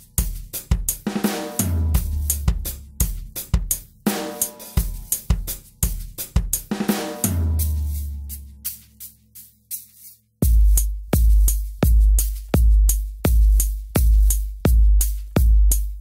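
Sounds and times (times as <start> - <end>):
drum kit beat: 0.0 - 16.0
low bass notes: 1.6 - 3.1.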